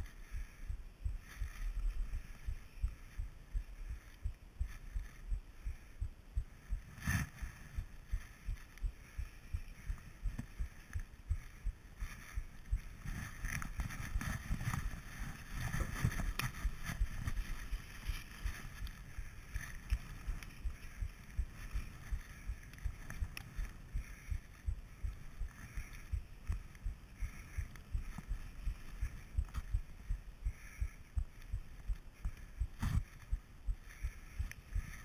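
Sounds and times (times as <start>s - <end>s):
muffled thumps of skis in snow: 9.9s - 23.9s, 31.4s - 33.4s.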